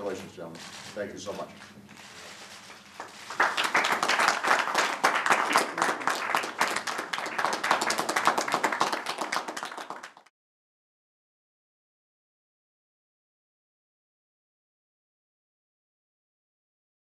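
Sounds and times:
people applauding: 0:02.9 - 0:10.3.

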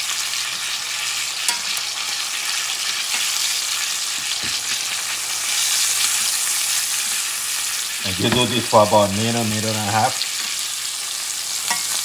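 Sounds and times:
steak sizzling in butter: 0:00.0 - 0:12.0
spoon clicking against pan: 0:11.7 - 0:12.0.

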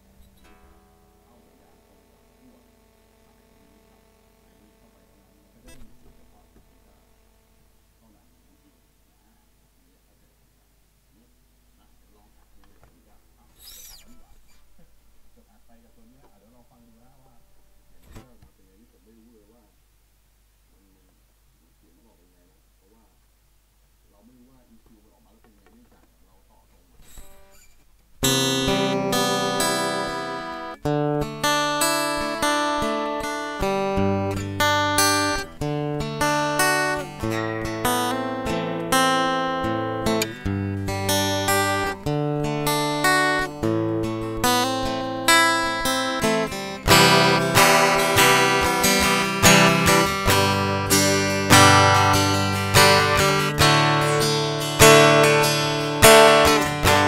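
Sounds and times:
guitar strumming chords: 0:00.0 - 0:07.8, 0:28.2 - 0:57.0.

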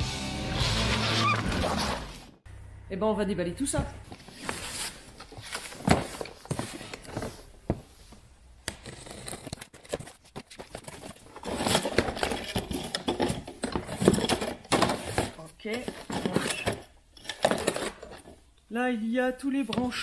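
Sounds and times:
cardboard flaps rustling: 0:04.1 - 0:08.2.

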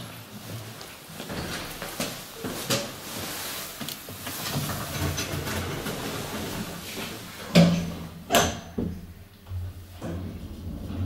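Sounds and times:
lift doors sliding shut: 0:09.5 - 0:11.0.

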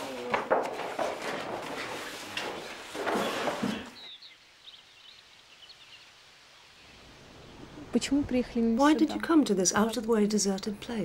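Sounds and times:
paper sheets rustling: 0:00.0 - 0:04.0.

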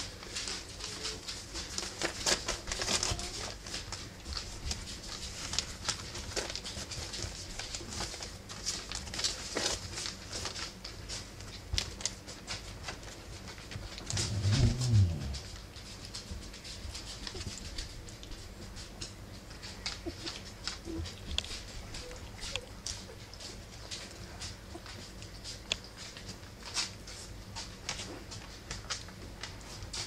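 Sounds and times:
puppy paws scratching and patting: 0:00.0 - 0:30.0.

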